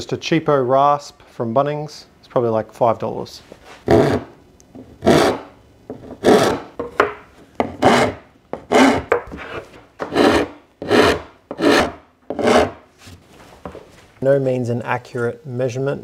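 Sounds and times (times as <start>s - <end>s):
rasp scraping wood: 3.7s - 4.3s, 5.0s - 6.8s, 7.6s - 12.8s.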